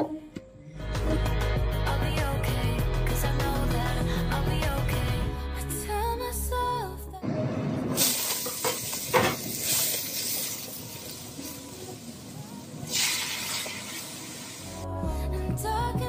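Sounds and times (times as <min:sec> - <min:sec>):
oil sizzling in a wok: 0:07.9 - 0:14.9.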